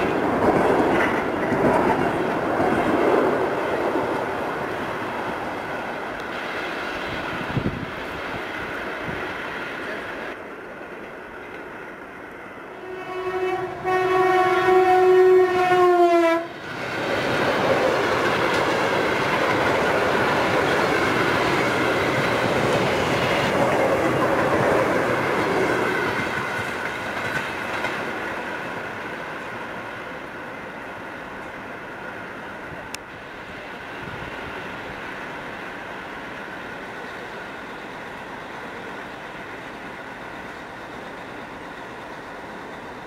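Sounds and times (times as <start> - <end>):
train passing at speed: 0.0 - 43.0
train horn blast: 12.7 - 16.6.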